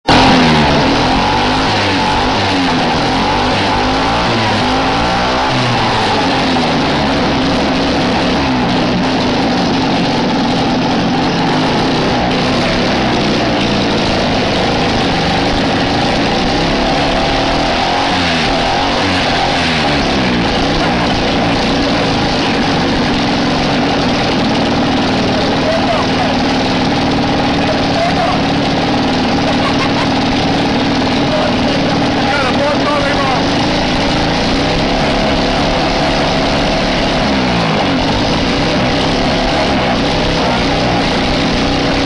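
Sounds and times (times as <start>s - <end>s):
rotary engine running: 0.0s - 42.0s.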